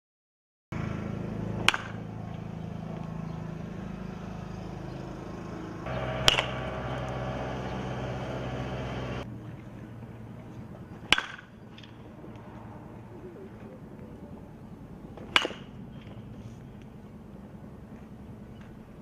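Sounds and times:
low background hum: 0.8s - 19.0s
baseball bat hitting ball: 1.6s - 2.1s, 5.9s - 9.2s, 11.0s - 12.0s, 15.2s - 16.2s.

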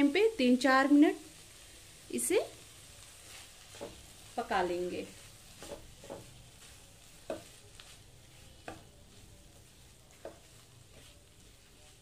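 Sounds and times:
faint sizzle: 0.0s - 12.0s
spatula scraping a pan: 3.0s - 12.0s.

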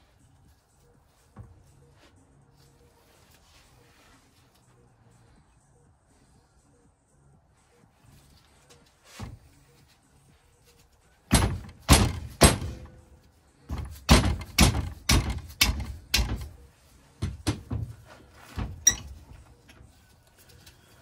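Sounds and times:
hammer striking punch on metal: 11.3s - 13.0s, 13.7s - 16.6s.

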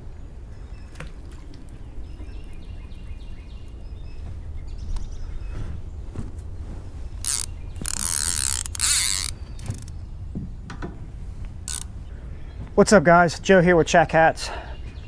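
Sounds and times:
fishing reel ratcheting: 7.2s - 9.9s, 11.7s - 11.9s.

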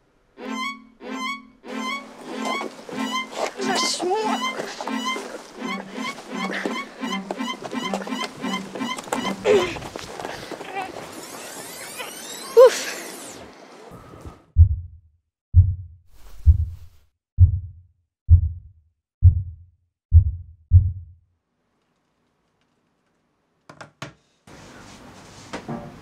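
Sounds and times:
deep dull heartbeat thumps: 14.6s - 21.1s.

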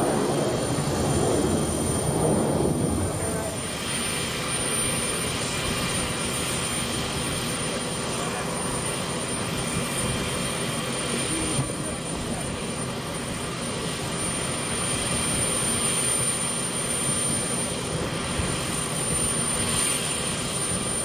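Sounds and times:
distant jet airliner overhead: 0.0s - 21.0s.

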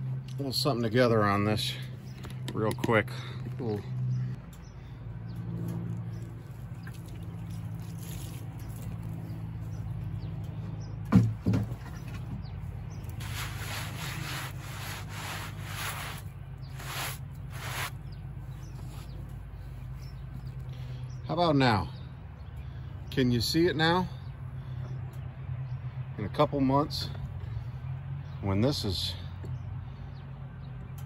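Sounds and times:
engine idling hum: 0.0s - 31.0s
gloved hands wiping wood: 13.1s - 18.0s.

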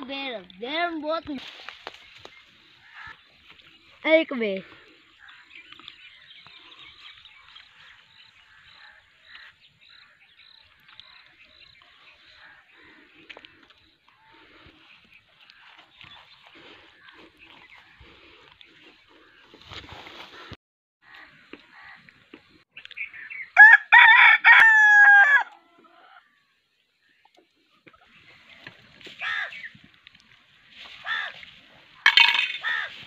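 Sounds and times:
rooster crowing: 23.6s - 25.6s.

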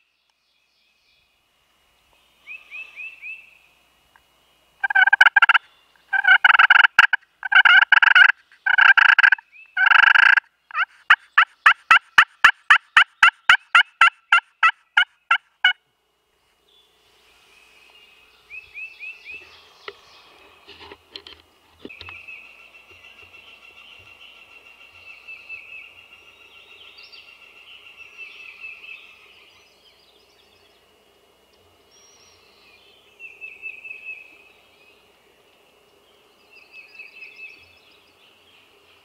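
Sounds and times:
friction turkey call: 4.8s - 15.8s.

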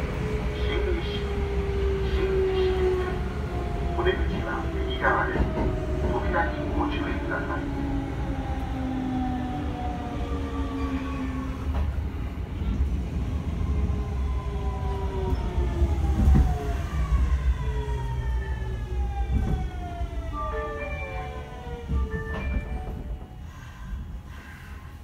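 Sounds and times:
train inverter whining: 0.0s - 25.0s.

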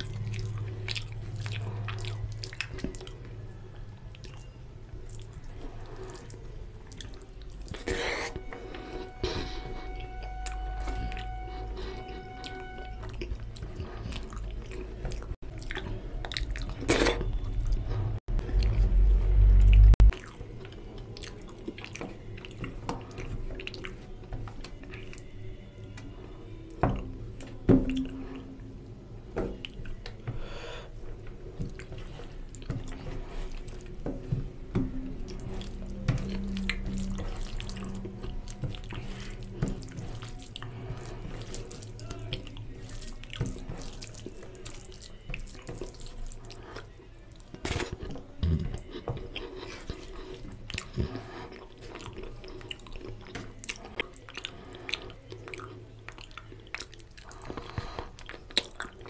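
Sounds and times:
wet squishing of food: 0.0s - 9.2s, 10.2s - 59.0s
loud low rumble: 17.9s - 20.1s.

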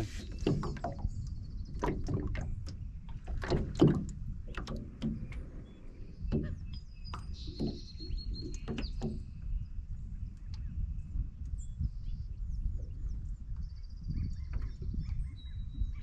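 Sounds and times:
small waves slapping a metal hull: 0.0s - 11.6s, 13.4s - 16.0s
low wind rumble: 0.0s - 16.0s
bird singing faintly: 5.1s - 9.8s.

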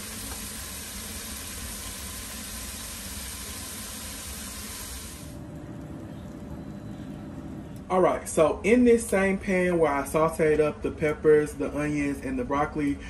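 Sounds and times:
vegetables sizzling in a pan: 0.0s - 5.3s.

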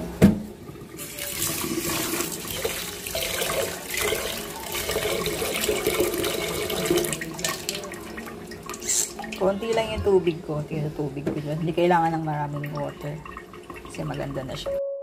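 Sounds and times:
tap water pouring into pot: 0.7s - 9.5s, 12.4s - 14.4s.

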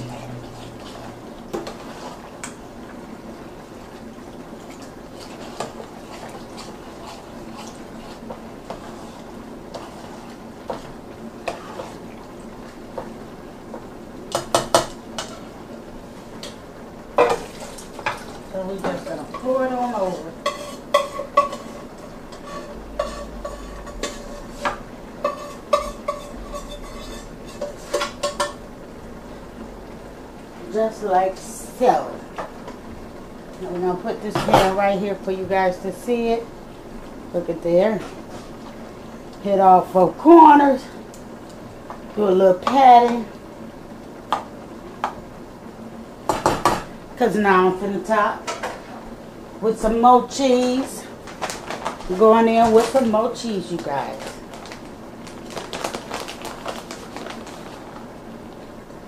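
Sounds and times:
low steady hum: 0.0s - 59.0s
spoon stirring wet mixture: 4.7s - 12.2s, 17.2s - 28.5s
metal pot clinking: 20.5s - 28.6s.

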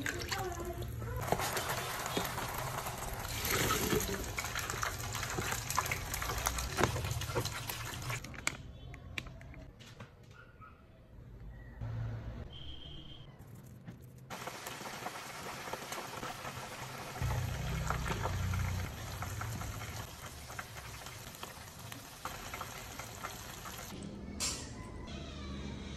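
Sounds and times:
chicken sizzling in a frying pan: 1.2s - 8.2s, 14.3s - 23.9s.

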